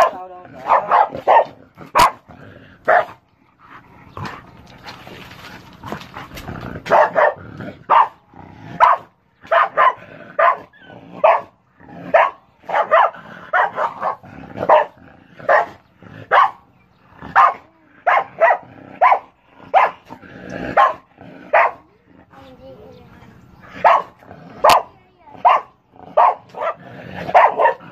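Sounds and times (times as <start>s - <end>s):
dog barking sharply: 0.0s - 2.2s, 6.9s - 8.2s, 27.4s - 27.8s.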